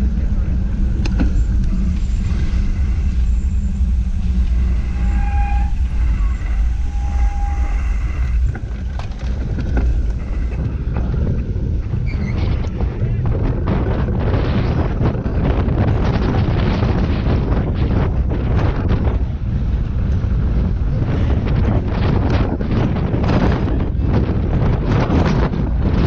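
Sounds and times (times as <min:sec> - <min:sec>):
motorcycle engines rumbling: 0:00.0 - 0:14.3
short high tones: 0:01.7 - 0:10.8.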